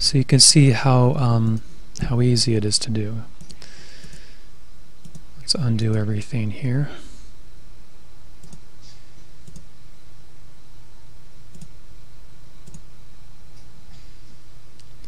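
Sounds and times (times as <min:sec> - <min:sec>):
low electrical hum: 0:00.0 - 0:15.0
computer mouse clicks: 0:05.0 - 0:05.2, 0:08.4 - 0:08.6, 0:09.4 - 0:09.7, 0:11.5 - 0:11.7, 0:12.6 - 0:12.8.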